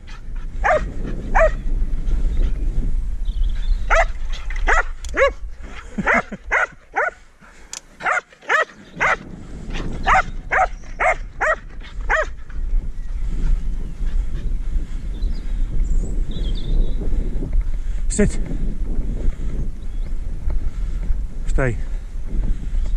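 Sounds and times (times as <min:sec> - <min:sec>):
dog barking: 0:00.6 - 0:01.6, 0:03.9 - 0:04.1, 0:04.7 - 0:05.4, 0:06.1 - 0:07.2, 0:08.0 - 0:09.2, 0:10.0 - 0:12.3.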